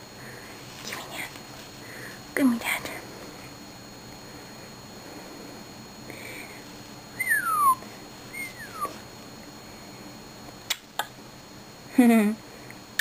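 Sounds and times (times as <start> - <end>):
macaw whistle-like calls: 7.2 - 9.0.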